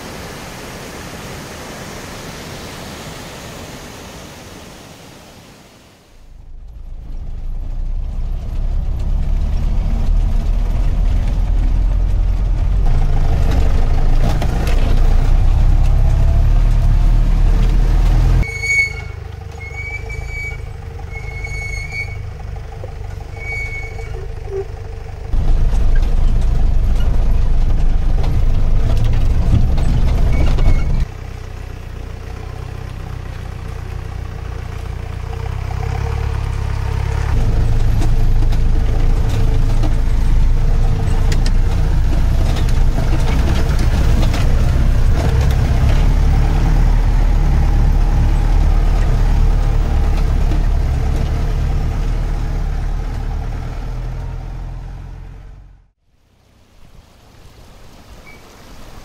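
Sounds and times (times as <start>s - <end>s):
off-road vehicle engine rumbling: 6.2s - 57.5s.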